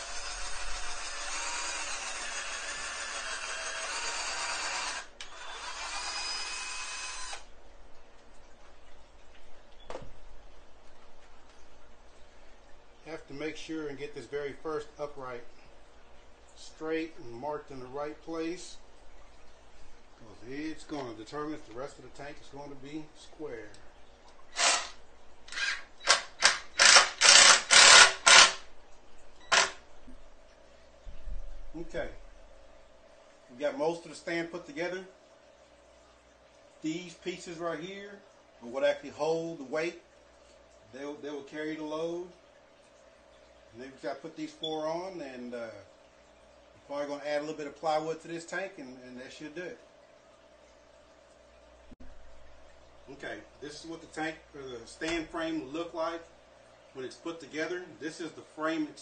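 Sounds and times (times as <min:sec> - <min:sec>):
cordless drill running into wood: 0:00.0 - 0:07.5, 0:24.5 - 0:28.6
impact driver rattling bursts: 0:24.6 - 0:28.6.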